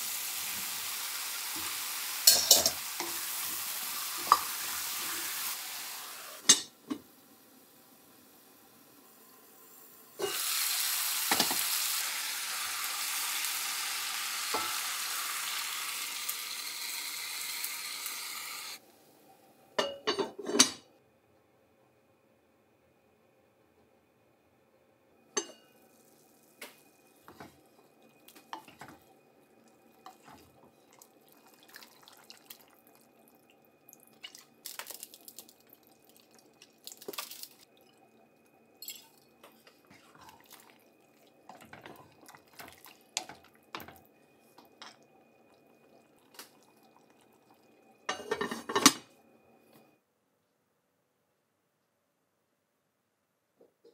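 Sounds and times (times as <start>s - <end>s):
pot lid and utensils clinking: 2.2s - 3.3s, 6.4s - 7.0s, 10.2s - 10.4s, 19.8s - 20.8s, 38.8s - 39.8s, 48.1s - 49.1s.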